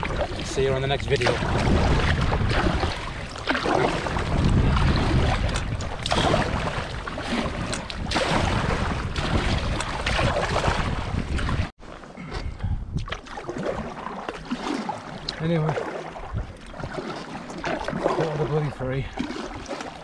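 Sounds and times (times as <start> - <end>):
paddle strokes splashing water: 0.0 - 12.2, 13.0 - 20.0
wind rumbling on microphone: 0.0 - 13.9, 16.1 - 17.0.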